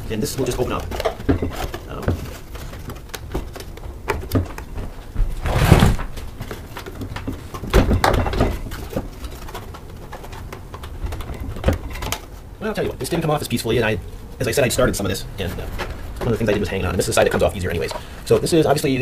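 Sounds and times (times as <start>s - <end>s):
plastic scraping and rustling: 0.0s - 19.0s
plastic knocks and clicks: 0.4s - 12.3s.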